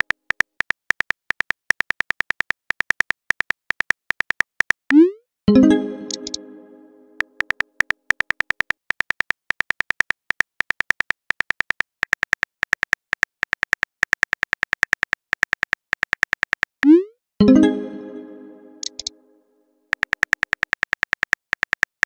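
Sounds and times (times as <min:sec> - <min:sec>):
phone keyboard typing clicks: 0:06.0 - 0:06.4, 0:18.8 - 0:19.1, 0:19.9 - 0:22.0.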